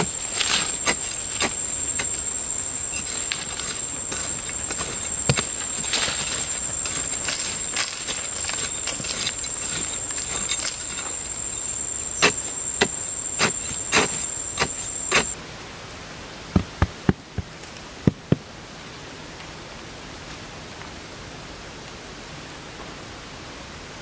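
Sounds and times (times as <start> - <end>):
high insect drone: 0.0 - 15.4.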